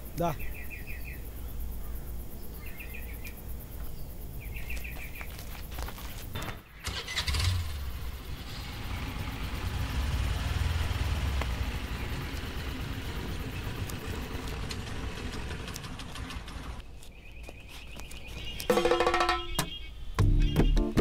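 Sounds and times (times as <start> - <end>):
scooter engine starting and running: 6.7 - 16.8.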